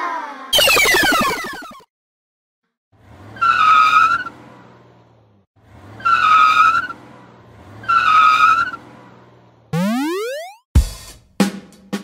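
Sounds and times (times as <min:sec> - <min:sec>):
tyre squeal: 0:05.9 - 0:07.0.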